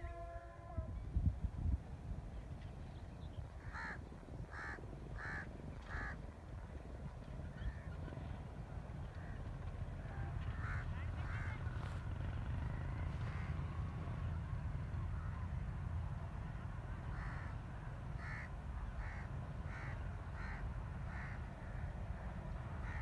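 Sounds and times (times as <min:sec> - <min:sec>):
steady low rumble: 0:00.9 - 0:23.0
crow cawing: 0:03.6 - 0:06.2, 0:10.6 - 0:11.5, 0:17.2 - 0:17.5, 0:18.2 - 0:21.5.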